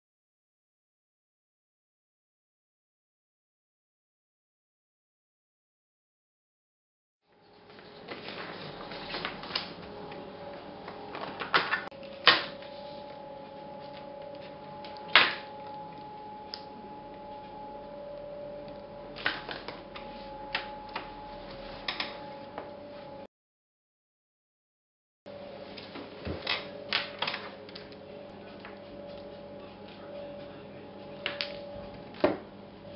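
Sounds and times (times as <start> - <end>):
faint high whine: 7.3 - 23.3, 25.3 - 32.9
steady hum: 7.3 - 23.3, 25.3 - 32.9.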